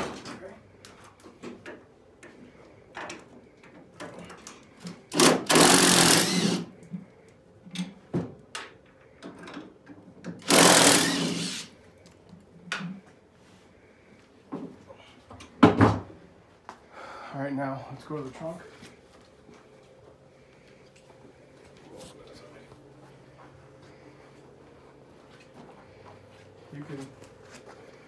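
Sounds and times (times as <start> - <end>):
cordless impact driver: 5.1 - 6.8, 10.4 - 11.7.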